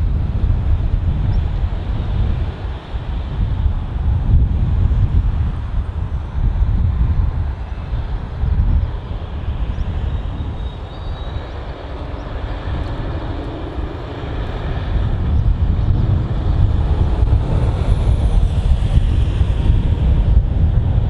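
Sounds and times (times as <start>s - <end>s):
jet engines rumbling: 0.0s - 21.0s.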